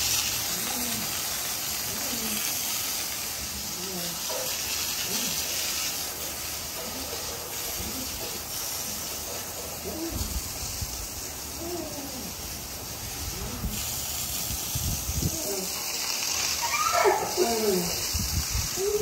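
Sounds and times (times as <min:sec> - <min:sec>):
water hose spraying: 0:00.0 - 0:19.0
dogs whining: 0:15.2 - 0:18.1, 0:18.8 - 0:19.0.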